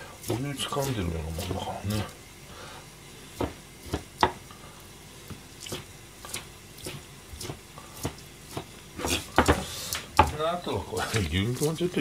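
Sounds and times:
knife tapping on cutting board: 0:03.4 - 0:04.4, 0:08.0 - 0:09.6, 0:10.2 - 0:10.4.

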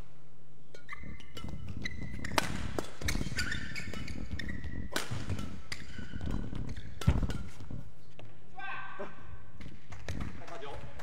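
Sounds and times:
rackets striking shuttlecock: 0:00.7 - 0:07.8
shoes squeaking: 0:00.7 - 0:08.5.

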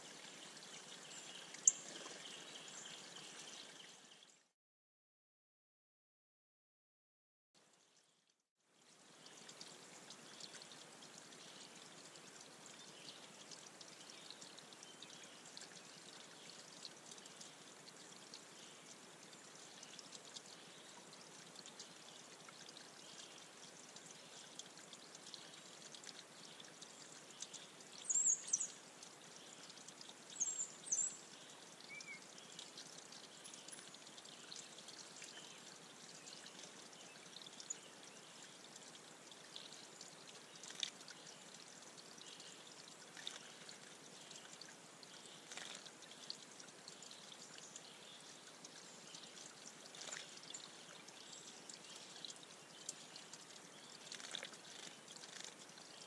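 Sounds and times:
water trickling over rocks: 0:00.0 - 0:04.5, 0:07.6 - 0:56.0
bird splashing in water: 0:54.0 - 0:55.5.

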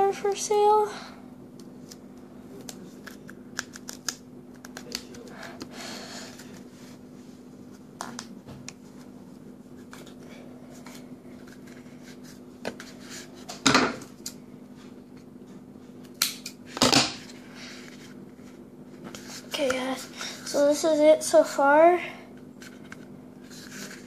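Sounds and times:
duct tape crinkling and clicking: 0:02.6 - 0:05.3.

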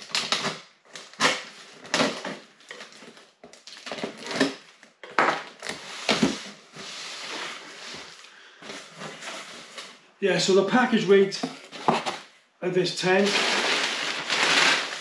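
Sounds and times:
knife slitting packing tape: 0:00.0 - 0:02.2.

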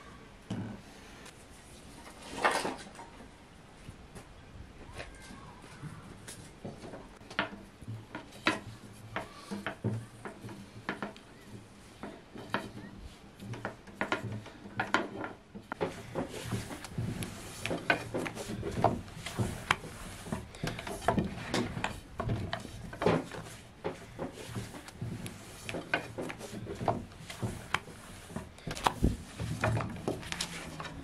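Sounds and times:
dough rubbing against wood: 0:07.9 - 0:31.0.

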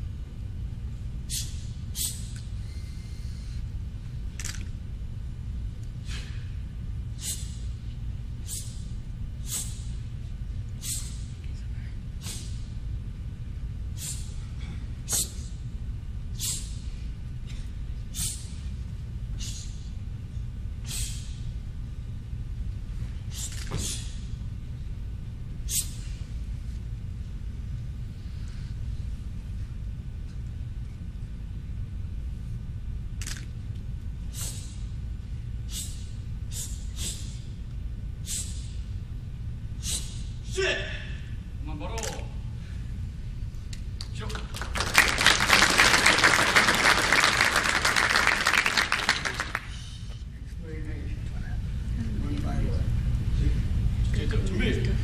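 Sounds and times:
low hum: 0:00.0 - 0:55.0
low room rumble: 0:00.0 - 0:55.0
sharp hissing breaths: 0:01.3 - 0:03.7, 0:06.0 - 0:07.8, 0:08.4 - 0:10.0, 0:10.7 - 0:11.4, 0:12.2 - 0:12.7, 0:13.9 - 0:15.6, 0:16.3 - 0:18.7, 0:19.3 - 0:20.0, 0:20.8 - 0:21.5, 0:23.2 - 0:24.3, 0:25.6 - 0:26.3, 0:34.3 - 0:34.9, 0:35.6 - 0:37.6, 0:38.2 - 0:38.9, 0:39.8 - 0:40.4
hissing swishes of kicks: 0:10.7 - 0:11.4, 0:12.2 - 0:12.8, 0:13.9 - 0:15.6, 0:23.2 - 0:24.3.

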